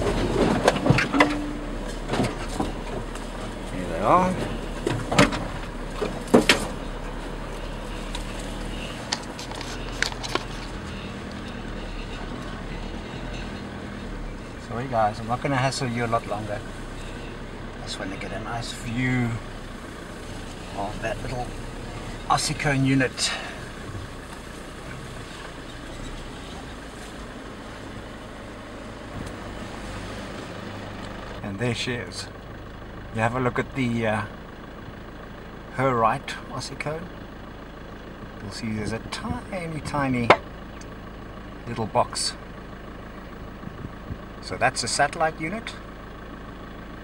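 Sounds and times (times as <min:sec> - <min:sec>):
vehicle knocks and clatters: 0:00.0 - 0:29.7, 0:37.7 - 0:41.4
truck engine hum: 0:00.0 - 0:47.0
tyres on rough track: 0:00.0 - 0:47.0.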